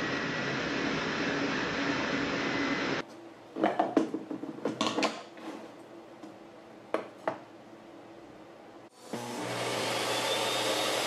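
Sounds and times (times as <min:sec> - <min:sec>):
table saw running: 0:09.0 - 0:11.0.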